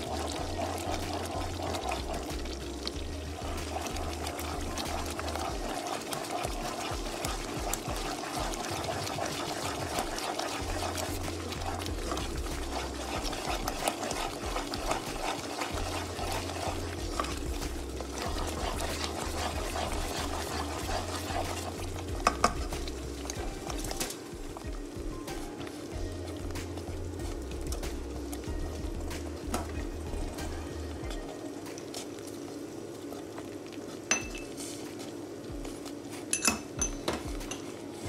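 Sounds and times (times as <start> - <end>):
steady hum: 0.0 - 31.8
spoon stirring thick wet food: 0.0 - 38.0
spoon knocking pan: 3.6 - 25.7, 34.1 - 34.5.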